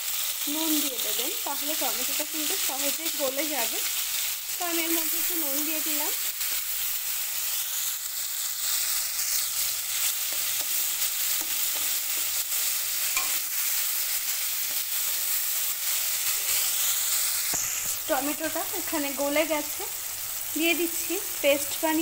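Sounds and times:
tomatoes sizzling in hot oil: 0:00.0 - 0:22.0
metal spatula scraping pan: 0:10.2 - 0:13.8.

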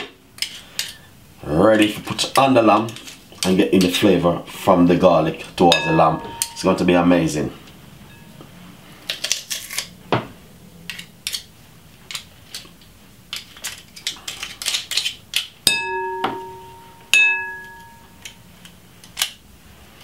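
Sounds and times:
sharp ringing metal taps: 0:05.7 - 0:06.9, 0:15.7 - 0:18.3.

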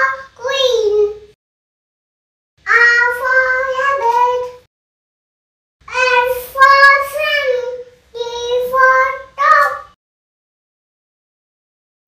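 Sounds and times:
toddler girl reciting: 0:00.0 - 0:01.4, 0:02.6 - 0:04.7, 0:05.9 - 0:10.0.

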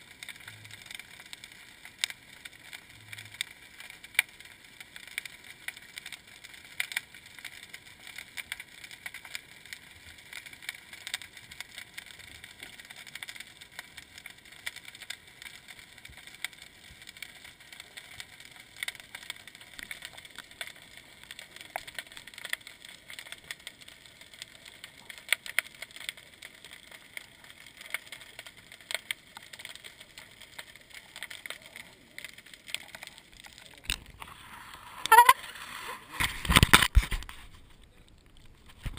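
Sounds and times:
sharp underwater clicks and crackles: 0:00.0 - 0:38.9
muffled underwater hiss: 0:24.1 - 0:38.9.

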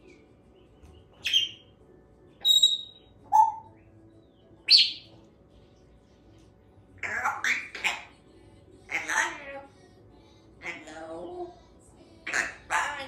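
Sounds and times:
parrot calling: 0:01.2 - 0:01.7, 0:02.4 - 0:03.8, 0:04.6 - 0:05.1, 0:07.0 - 0:08.2, 0:08.9 - 0:09.7, 0:10.6 - 0:11.6, 0:12.2 - 0:13.0.

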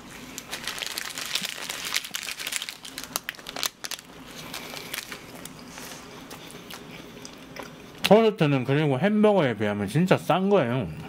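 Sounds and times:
paper wrapper crinkling: 0:00.2 - 0:05.9.

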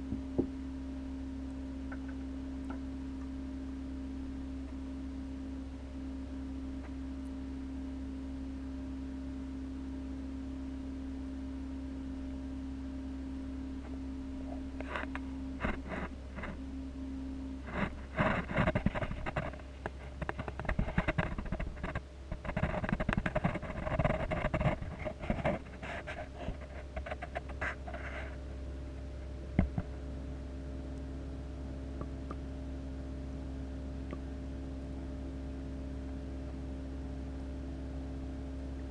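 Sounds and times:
aquarium equipment humming: 0:00.0 - 0:38.9
clattering clicks and scrapes: 0:14.8 - 0:16.6, 0:17.6 - 0:28.4.

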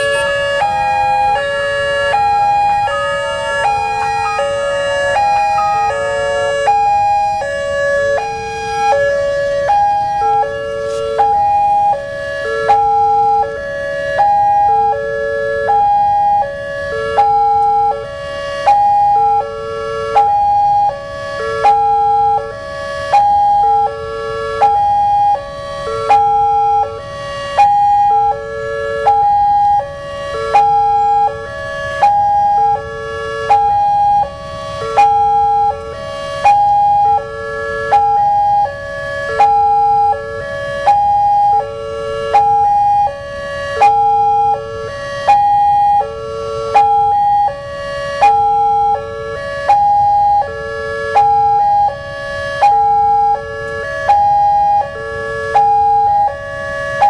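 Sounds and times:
level crossing alarm tune: 0:00.0 - 0:13.5.

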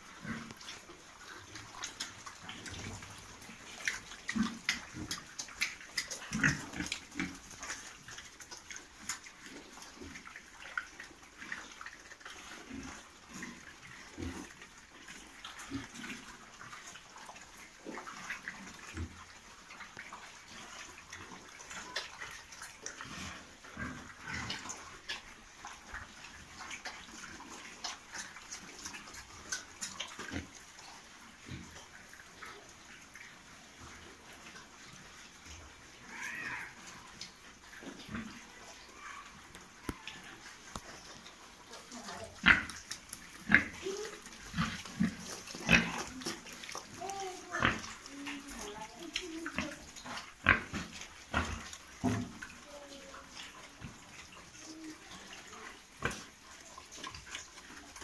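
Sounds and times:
pigs grunting: 0:00.0 - 0:08.8, 0:20.5 - 0:25.3, 0:37.8 - 0:58.0.

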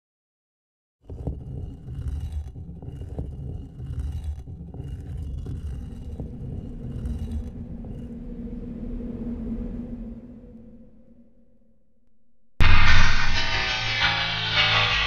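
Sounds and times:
deep low rumble: 0:01.3 - 0:11.9, 0:12.6 - 0:15.0
steady low hum: 0:02.3 - 0:11.6.

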